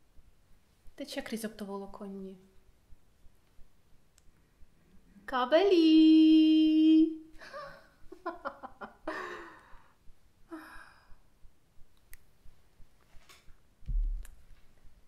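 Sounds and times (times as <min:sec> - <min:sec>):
woman giggling and laughing: 0:07.4 - 0:09.6
woman sighing: 0:10.5 - 0:11.2.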